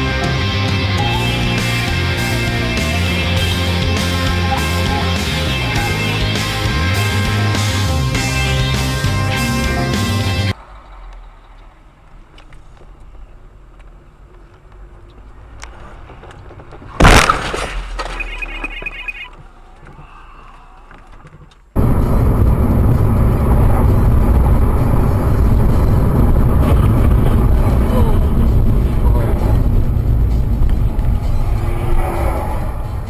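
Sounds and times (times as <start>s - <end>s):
loud steady vehicle noise: 0.0s - 33.0s
quiet road sound: 0.0s - 33.0s
car crash: 15.3s - 19.3s
high beeps: 18.1s - 19.4s.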